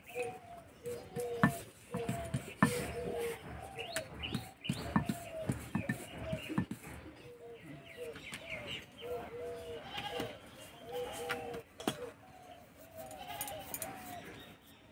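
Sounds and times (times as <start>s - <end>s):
birds calling: 0.0s - 14.9s
rolling pin knocking on stone: 1.1s - 3.0s, 3.8s - 6.8s.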